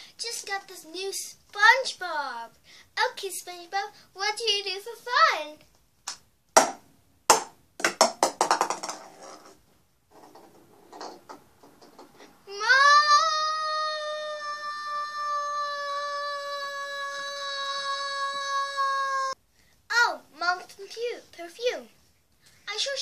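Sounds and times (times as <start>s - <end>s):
girl singing a long high note: 12.5s - 19.4s
loud vocal outbursts: 12.5s - 19.4s.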